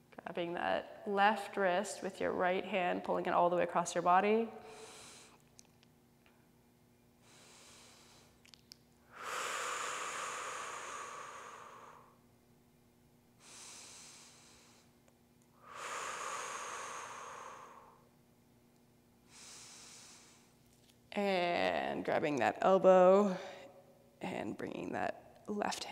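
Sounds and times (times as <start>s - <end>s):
woman breathing slowly: 4.5s - 5.5s, 7.2s - 12.2s, 13.4s - 15.0s, 15.6s - 18.1s, 19.2s - 20.6s, 23.2s - 23.8s.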